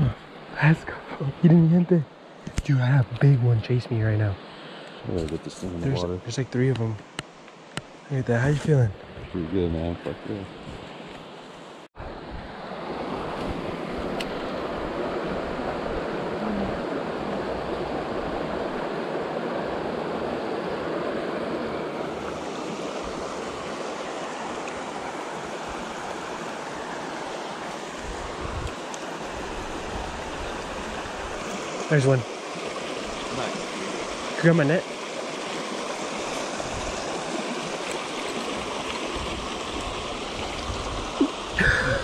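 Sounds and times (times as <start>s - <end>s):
creek water rushing over rocks: 12.5s - 42.0s.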